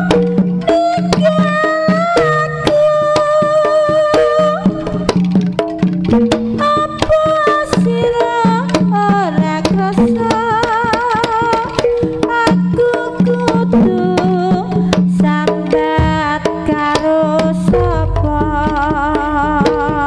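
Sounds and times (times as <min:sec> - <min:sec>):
hand drums playing rhythm: 0:00.0 - 0:20.0
steady low note: 0:17.7 - 0:19.7.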